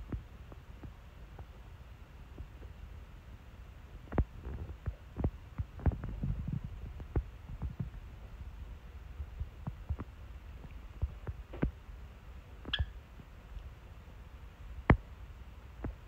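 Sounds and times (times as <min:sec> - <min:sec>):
low steady hum: 0:00.0 - 0:16.0
soft taps and thumps: 0:04.1 - 0:08.0, 0:09.2 - 0:11.8.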